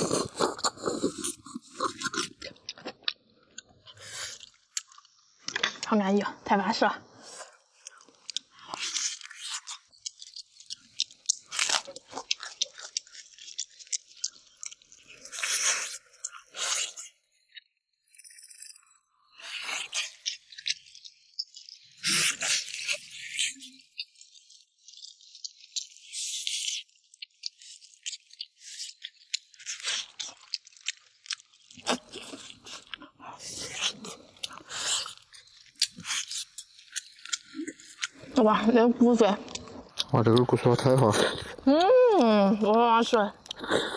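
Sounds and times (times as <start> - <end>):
person gnawing meat off bone: 0.0 - 5.7, 7.3 - 17.4, 18.2 - 38.3, 39.4 - 41.6, 43.4 - 43.9
wet chewing and mouth clicks: 0.0 - 6.6, 7.2 - 43.9.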